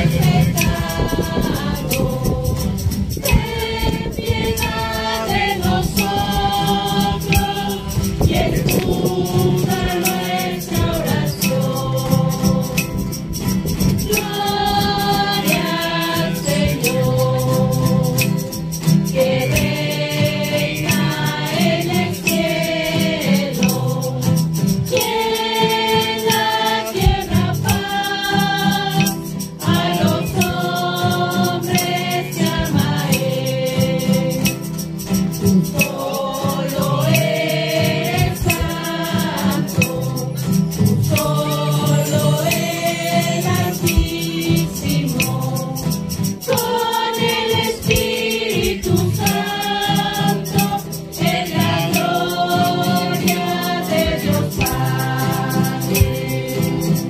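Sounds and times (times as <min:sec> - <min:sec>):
rattles shaking: 0:00.0 - 0:57.0
voices singing together: 0:00.0 - 0:57.0.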